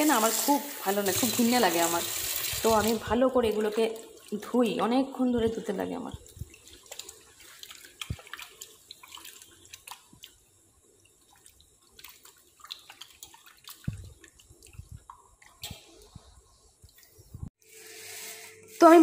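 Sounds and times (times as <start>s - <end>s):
faint water splashes and drips: 0.2s - 17.4s
meat swishing in bowl of water: 5.6s - 17.3s.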